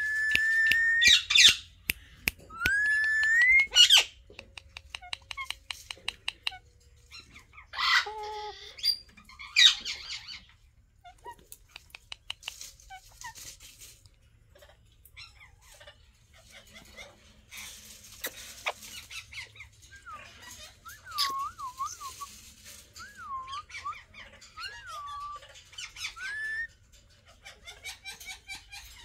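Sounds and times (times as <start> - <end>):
rising held whistle: 0.0 - 1.3, 2.5 - 3.7
parakeets squawking: 2.7 - 4.2, 7.2 - 10.5, 23.4 - 29.0
quick runs of small clicks: 4.3 - 6.5, 11.5 - 12.8
soft bird chirps: 17.5 - 26.8.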